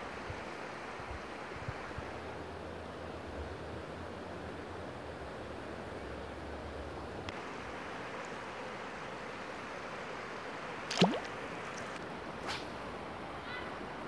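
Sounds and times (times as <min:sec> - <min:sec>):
river water flowing over riffle: 0:07.3 - 0:12.0.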